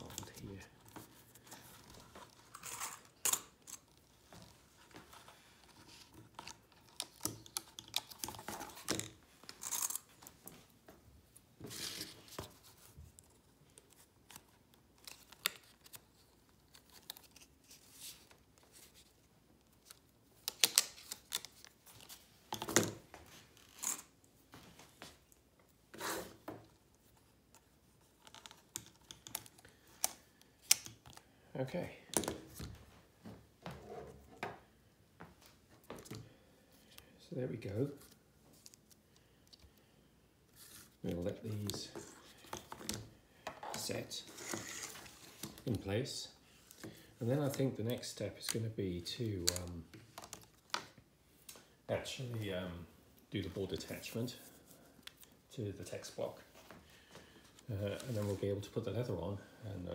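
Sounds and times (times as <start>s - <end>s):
card rustling: 40.5s - 45.9s, 53.4s - 58.8s.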